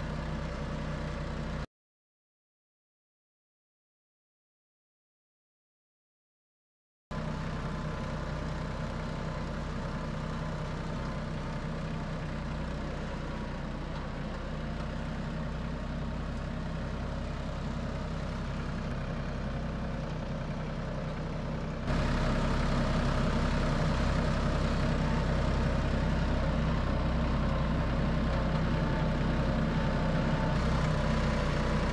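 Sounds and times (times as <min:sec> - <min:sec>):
tractor engine running: 0:00.0 - 0:01.7, 0:07.1 - 0:31.9.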